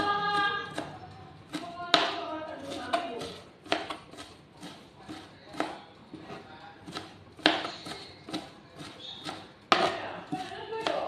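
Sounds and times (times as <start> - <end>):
knife chopping on plastic board: 0.2 - 11.0.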